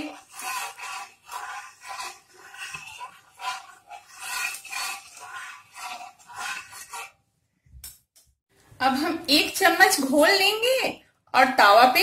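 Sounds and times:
spatula scraping hot griddle: 0.0s - 7.3s.

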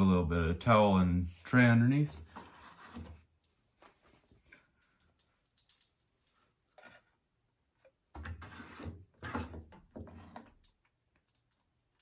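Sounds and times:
rustling and scraping: 2.0s - 4.3s, 8.2s - 10.5s.

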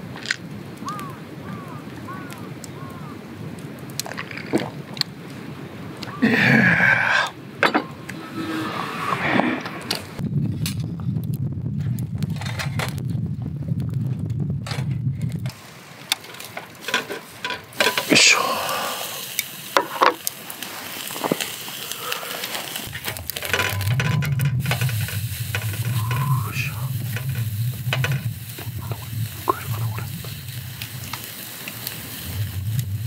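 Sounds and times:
crackles and pops: 0.0s - 8.2s, 9.6s - 33.0s
meat sizzling on a grill: 15.6s - 33.0s.

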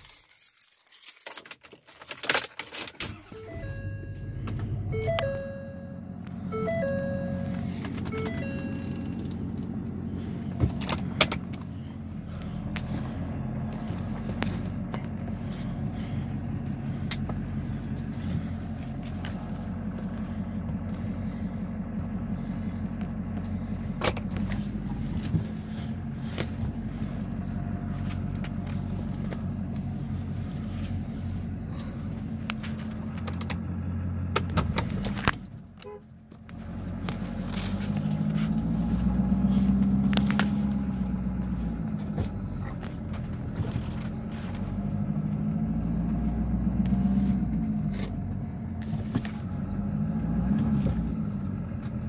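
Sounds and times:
keys jingling: 0.0s - 5.3s
diesel engine idling: 3.0s - 52.0s.

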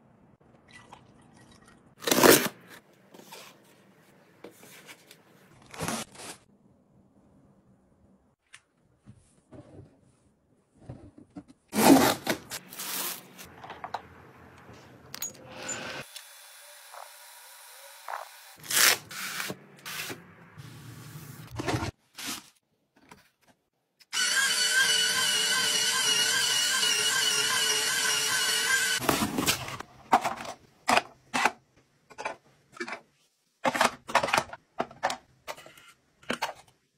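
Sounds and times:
electric apple peeler motor whine: 24.1s - 29.0s
plastic organisers clicking and knocking: 33.6s - 35.3s.

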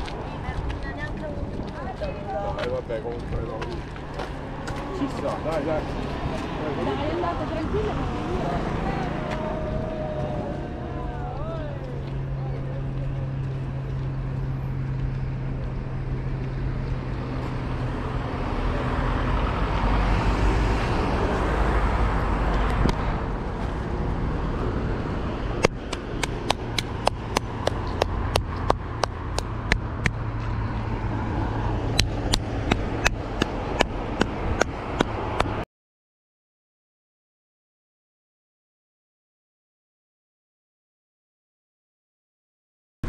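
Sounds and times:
running footsteps on pavement: 0.0s - 18.0s, 25.6s - 35.6s
vehicle passing: 0.0s - 35.6s
road traffic: 0.0s - 35.7s.

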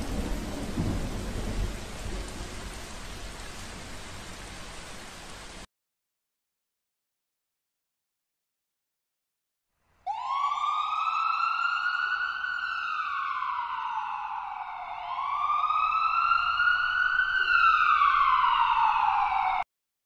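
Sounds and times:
police siren wailing: 10.1s - 19.7s.

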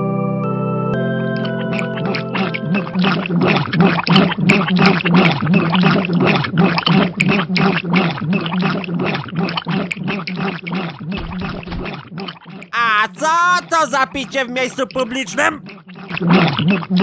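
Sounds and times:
people gulping drinks: 12.6s - 15.6s.

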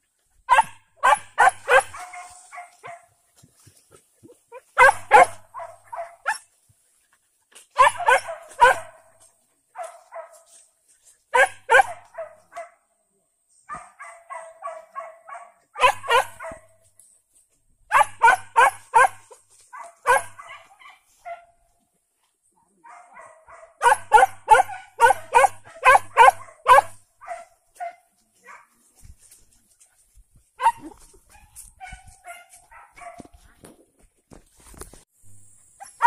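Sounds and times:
dogs barking: 0.5s - 3.2s, 4.5s - 6.5s, 7.8s - 10.5s, 11.3s - 12.8s, 13.7s - 16.8s, 17.9s - 21.5s, 22.8s - 28.8s, 30.6s - 33.3s.

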